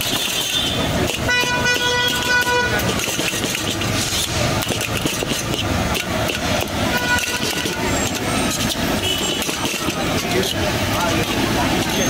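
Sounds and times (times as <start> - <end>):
car horn: 0.0 - 3.0, 6.8 - 9.6
steel ladle scraping a wok: 0.0 - 12.0
street traffic: 0.0 - 12.0.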